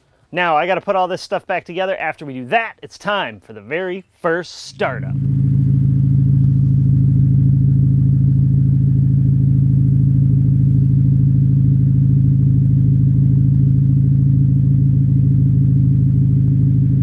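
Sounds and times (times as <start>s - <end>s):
car engine idling: 4.8s - 17.0s.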